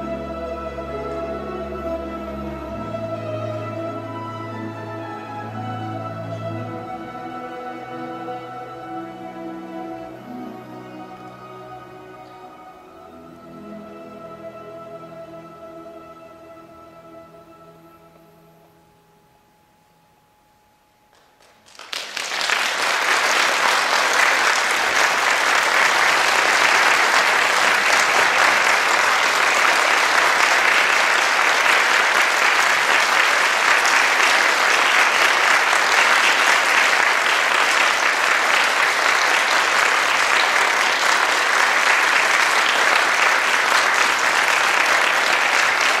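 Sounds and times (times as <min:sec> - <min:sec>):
audience applauding: 0:21.1 - 0:46.0.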